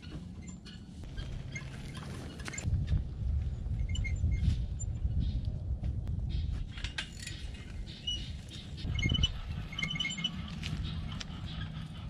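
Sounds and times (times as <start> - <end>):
wind buffeting microphone: 2.2 - 12.0.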